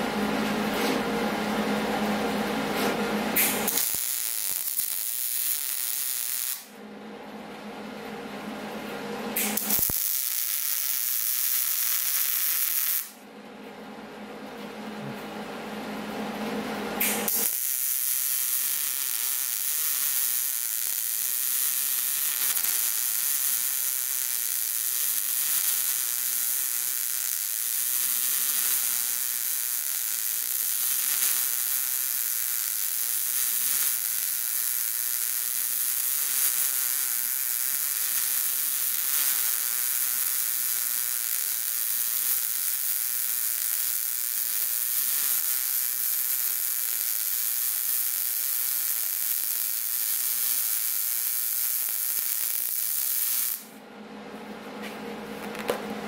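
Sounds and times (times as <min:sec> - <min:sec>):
welding arc sizzling: 0:02.8 - 0:06.7, 0:09.4 - 0:13.2, 0:17.0 - 0:53.8.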